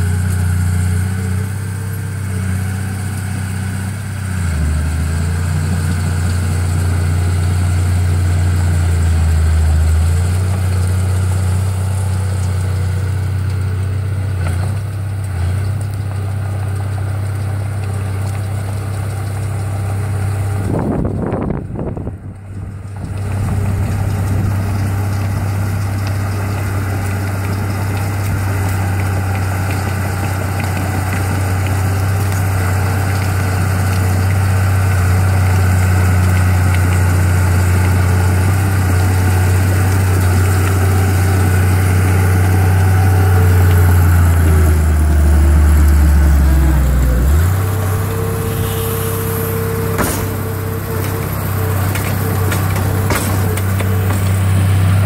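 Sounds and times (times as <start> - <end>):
diesel engine running: 0.0 - 55.0
steady high whine: 44.0 - 55.0.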